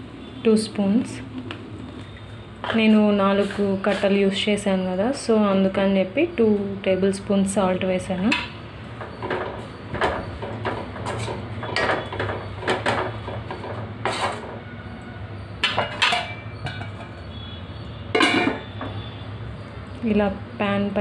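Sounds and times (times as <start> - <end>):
spatula scraping a wok: 2.6 - 4.3, 9.2 - 14.7.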